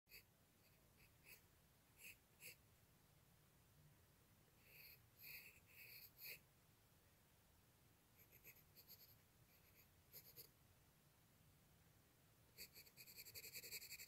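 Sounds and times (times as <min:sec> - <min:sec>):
pencil scratching on paper: 0:00.1 - 0:01.4, 0:02.0 - 0:02.6, 0:04.6 - 0:06.4, 0:08.2 - 0:10.5, 0:12.6 - 0:14.0.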